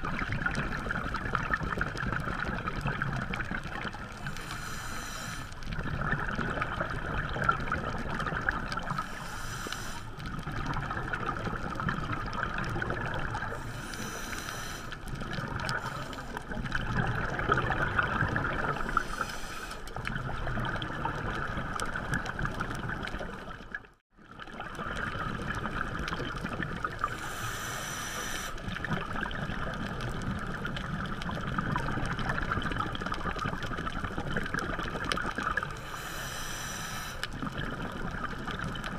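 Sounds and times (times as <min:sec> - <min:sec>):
diver's exhaled bubbles gurgling: 0:00.0 - 0:36.5, 0:37.3 - 0:38.9
underwater watery rush: 0:00.0 - 0:38.9.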